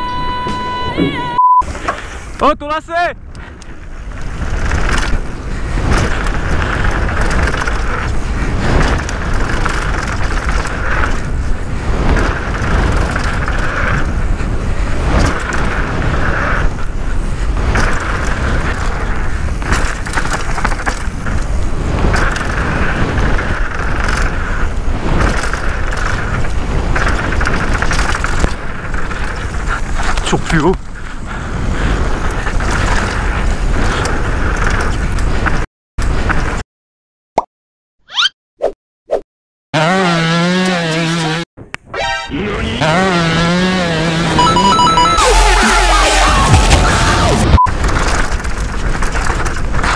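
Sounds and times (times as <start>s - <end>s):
tyres on loose dirt: 3.2s - 36.6s, 42.4s - 49.9s
wind on microphone: 3.2s - 36.6s
bike rattling over bumps: 3.4s - 36.6s, 46.4s - 49.9s.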